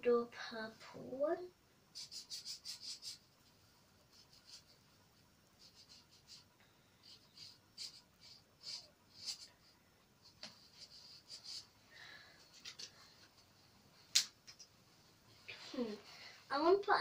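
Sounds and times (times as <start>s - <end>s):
marker scratching on fabric: 1.9s - 3.4s, 4.0s - 11.8s.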